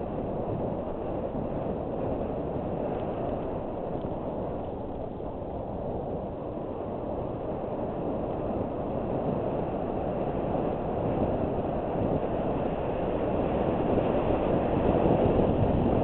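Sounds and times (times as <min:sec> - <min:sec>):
bike tyres on dirt: 0:00.0 - 0:06.4
wind rumble on microphone: 0:00.0 - 0:16.0.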